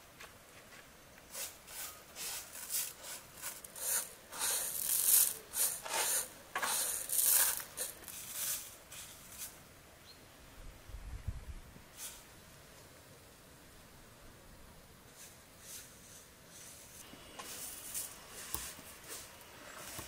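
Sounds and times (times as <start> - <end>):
rice scraping on metal tray: 1.3 - 9.6.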